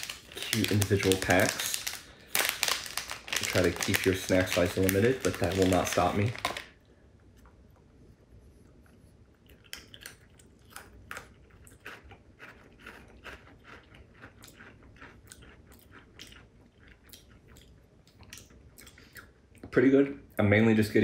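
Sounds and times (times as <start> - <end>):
crunchy snack being chewed: 9.4 - 19.0.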